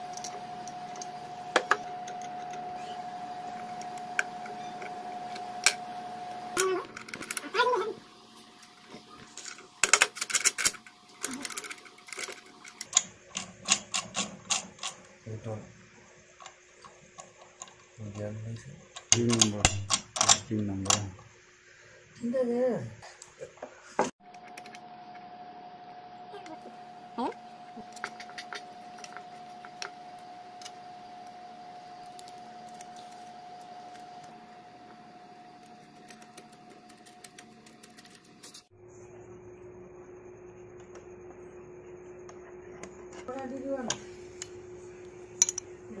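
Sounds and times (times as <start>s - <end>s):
faint high hum: 0.0s - 14.0s, 17.6s - 46.0s
metal gears clicking together: 9.8s - 15.0s.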